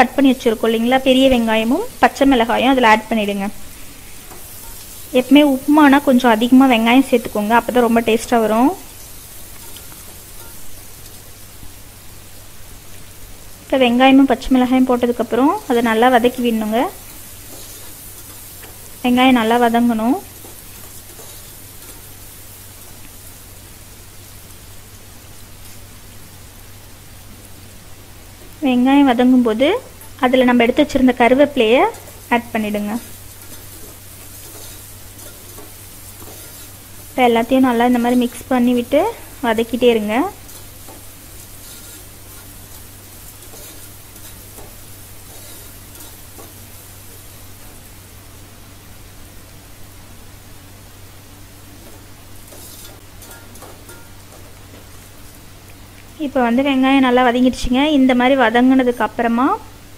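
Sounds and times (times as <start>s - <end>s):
vegetables sizzling in hot oil: 0.0s - 59.9s
metal spoon scraping pot: 33.4s - 36.8s, 41.6s - 42.6s, 52.5s - 54.4s.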